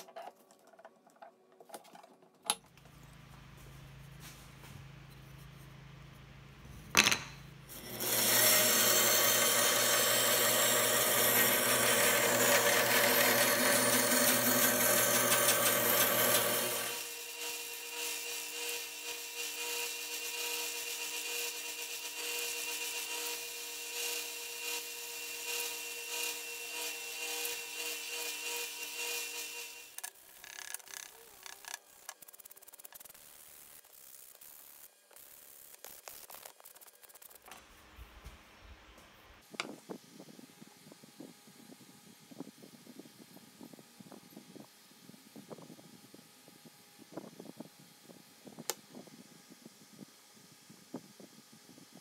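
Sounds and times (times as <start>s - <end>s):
belt sander humming: 7.7s - 17.2s
bandsaw motor running: 7.7s - 33.0s
saw blade cutting wood: 7.7s - 33.1s.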